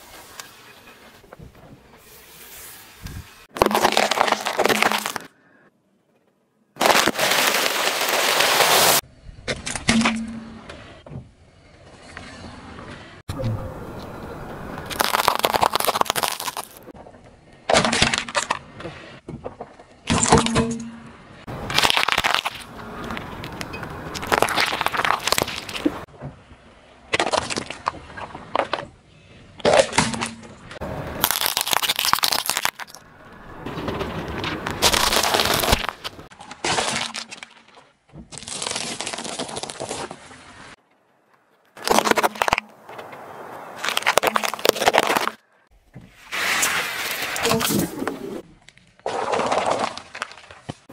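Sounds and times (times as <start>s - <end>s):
tyre crushing objects on asphalt: 3.5s - 5.3s, 6.8s - 9.0s, 14.8s - 16.9s, 21.5s - 26.1s, 29.6s - 40.2s, 41.8s - 45.4s
candy shells cracking: 14.9s - 16.8s, 21.7s - 23.2s, 24.2s - 25.9s, 31.2s - 33.0s, 34.8s - 36.1s.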